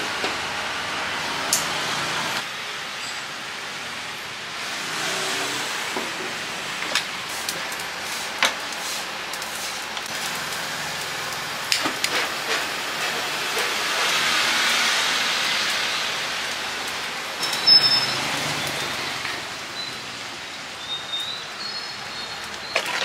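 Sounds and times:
gas burner hissing: 0.0 - 22.8.

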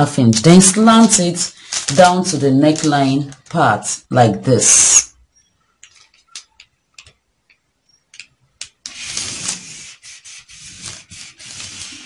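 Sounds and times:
paper rustling and rubbing: 0.3 - 3.6, 8.8 - 12.0
ruler and marker tapping paper: 6.4 - 12.0.

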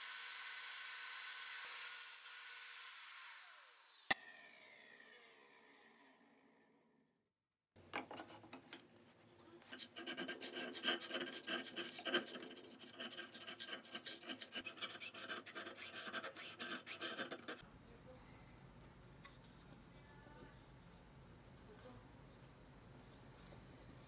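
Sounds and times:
power tool winding down: 0.0 - 5.2
chisel scraping wood: 9.6 - 17.6.

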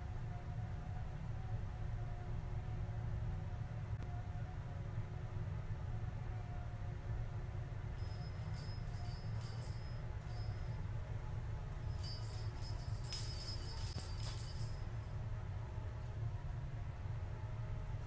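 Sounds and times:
small jingle bell ringing: 8.0 - 10.9, 11.8 - 15.2.

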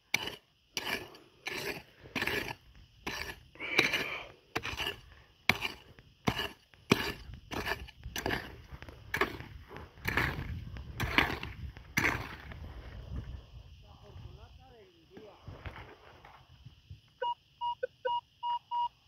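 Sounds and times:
digging tool chopping stony dirt: 0.0 - 12.6.

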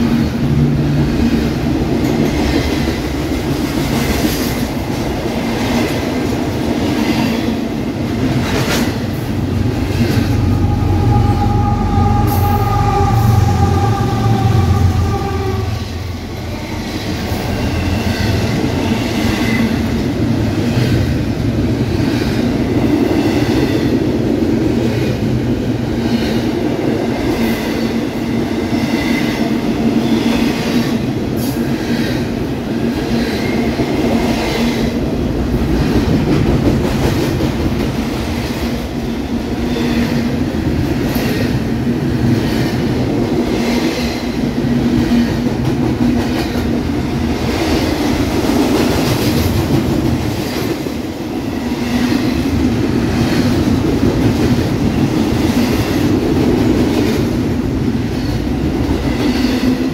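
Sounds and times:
steel wheels rumbling on rail: 0.0 - 59.9.

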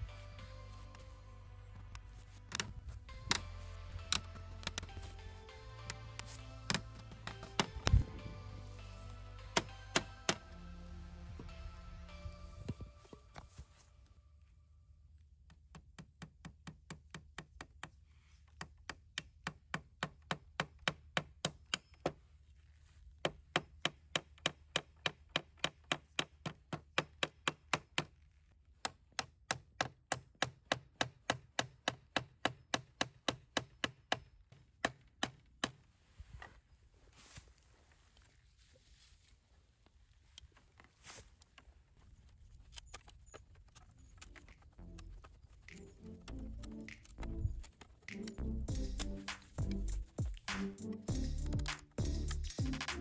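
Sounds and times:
hatchet hammering nails: 5.8 - 8.1, 9.4 - 10.6, 15.4 - 22.2, 23.2 - 35.8.

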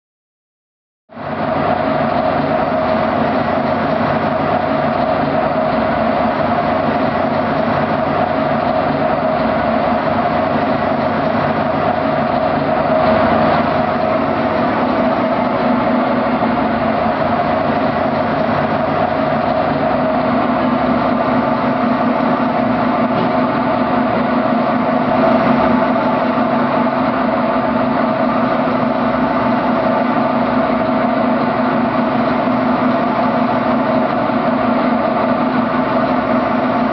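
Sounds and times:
washing machine drone: 1.1 - 36.9.

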